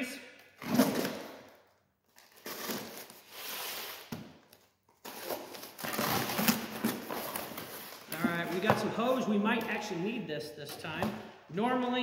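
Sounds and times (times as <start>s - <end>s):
packed contents rustling and scraping: 0.6s - 9.5s.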